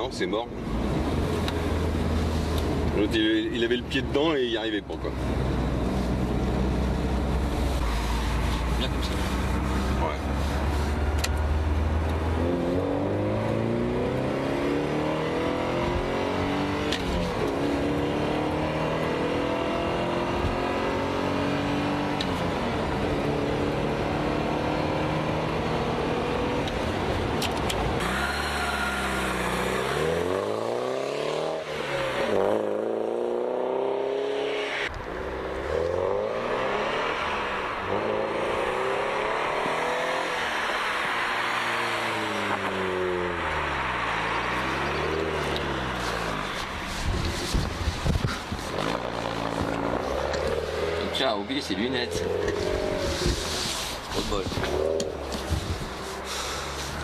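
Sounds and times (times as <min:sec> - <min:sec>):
car engine accelerating: 0:00.3 - 0:57.0
car driving by: 0:28.0 - 0:47.7.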